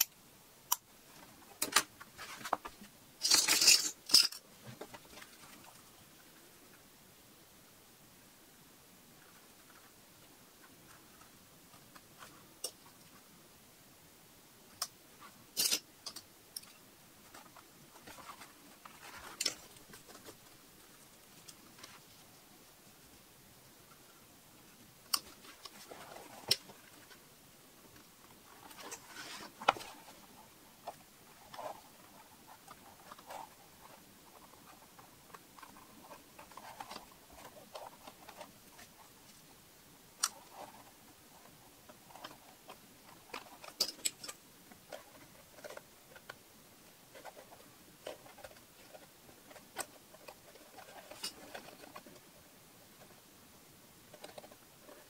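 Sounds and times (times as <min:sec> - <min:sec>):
leather rustling and scraping: 0:28.6 - 0:30.5.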